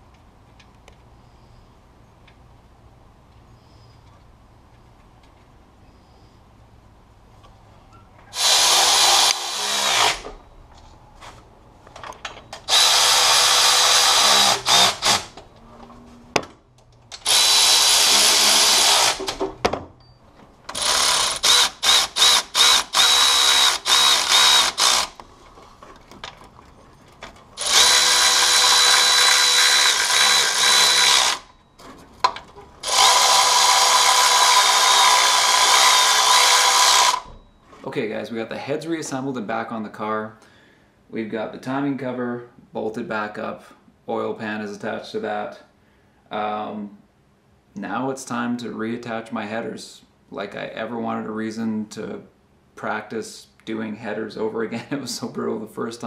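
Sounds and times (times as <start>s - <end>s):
electric ratchet whining: 8.3s - 10.4s, 12.6s - 15.4s, 17.1s - 19.4s, 20.7s - 25.2s, 27.6s - 31.6s, 32.8s - 37.4s.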